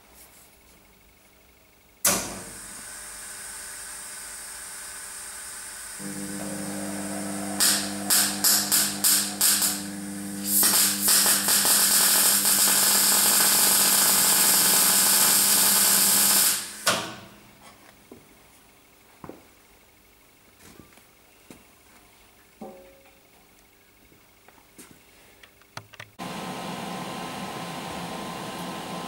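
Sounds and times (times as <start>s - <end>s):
welder electrical hum: 0.0s - 29.0s
welder gas hissing: 2.1s - 17.2s.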